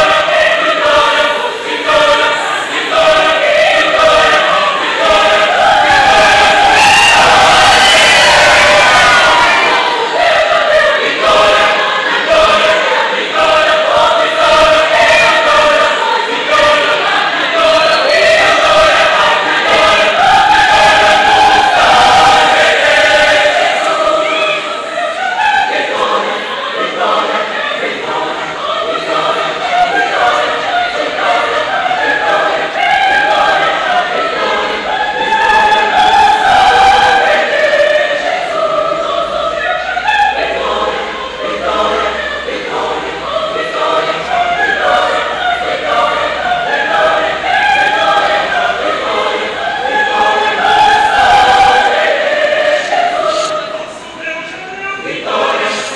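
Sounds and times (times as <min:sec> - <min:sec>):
mixed choir singing: 0:00.0 - 0:55.9.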